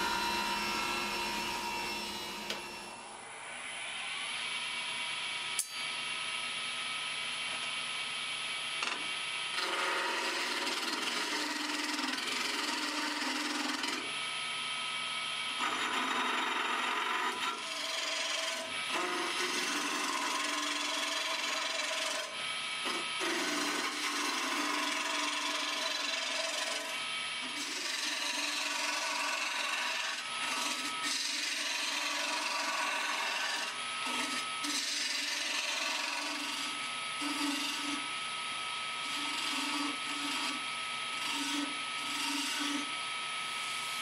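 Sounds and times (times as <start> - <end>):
wood lathe humming: 0.0 - 3.2, 9.6 - 14.2, 15.5 - 38.2, 39.0 - 44.0
turning tool scraping wood: 9.6 - 14.1, 15.6 - 38.1, 39.0 - 42.9.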